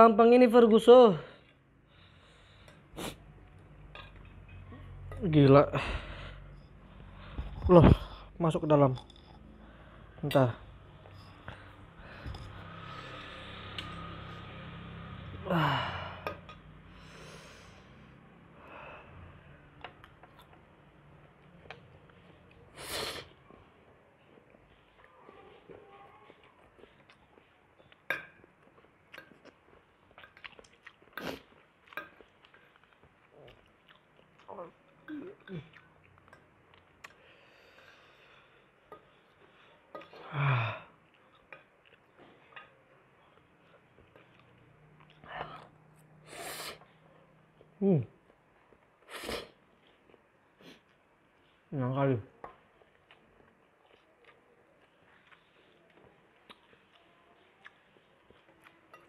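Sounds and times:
soft breaths: 1.2 - 3.4, 4.6 - 8.4, 9.3 - 14.8, 15.5 - 19.8, 37.0 - 41.4
man sighing heavily: 15.4 - 16.3.

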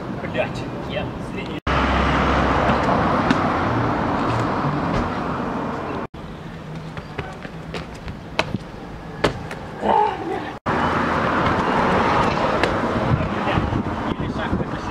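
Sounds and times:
passing traffic: 0.0 - 14.9
shoes landing on concrete: 6.8 - 9.6.

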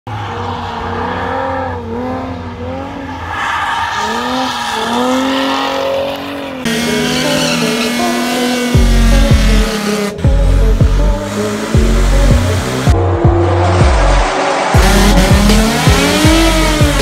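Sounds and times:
car engine revving: 0.1 - 17.0
tyres squealing: 3.0 - 8.2.

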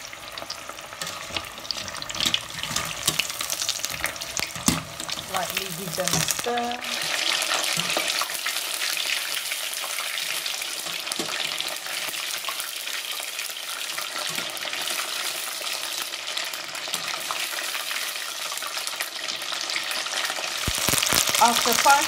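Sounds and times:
chicken wings deep-frying in oil: 0.0 - 22.0
strainer scraping: 1.0 - 5.3.

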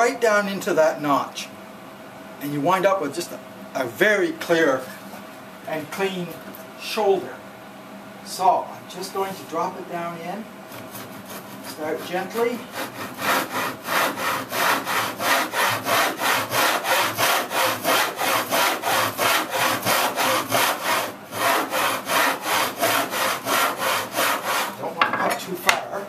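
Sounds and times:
hand saw cutting wood: 10.8 - 24.9.

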